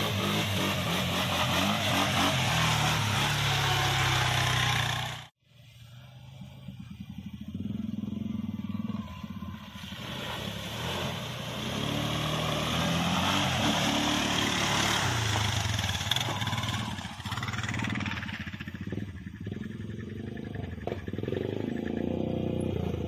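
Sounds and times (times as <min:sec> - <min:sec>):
quad bike engine revving: 0:00.0 - 0:05.4, 0:06.1 - 0:23.0
water and mud splashing: 0:09.5 - 0:18.3.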